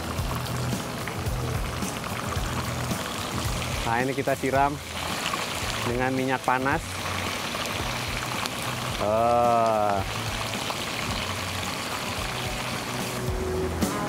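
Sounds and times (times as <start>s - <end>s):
oil sizzling: 0.0s - 14.0s.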